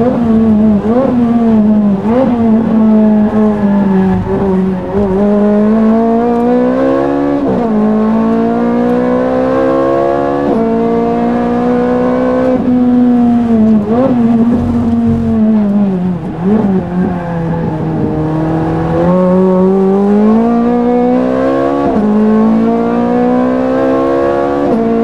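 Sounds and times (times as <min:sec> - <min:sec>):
race car engine accelerating: 0:00.0 - 0:25.0.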